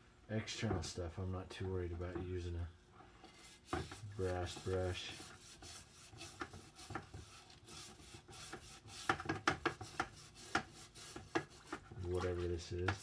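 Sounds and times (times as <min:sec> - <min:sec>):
wire brush scrubbing metal: 0:03.3 - 0:13.0.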